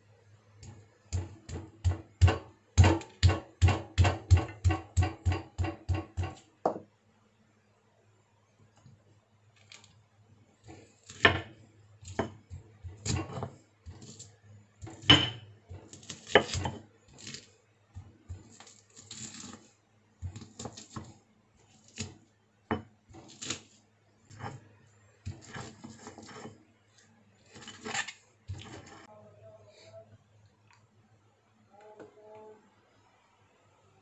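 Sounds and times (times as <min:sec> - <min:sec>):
stone pestle pounding in mortar: 0:01.1 - 0:06.4.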